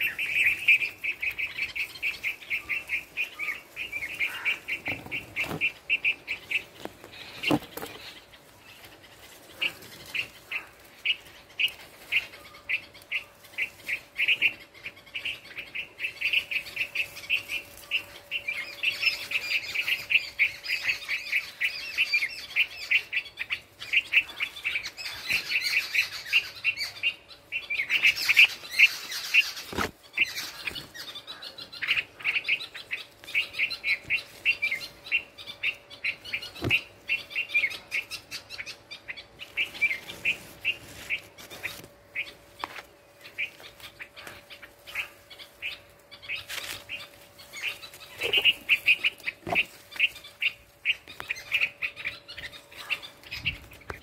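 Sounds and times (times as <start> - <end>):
faint steady hum: 0.0 - 54.0
nestling songbirds chirping: 0.0 - 54.0.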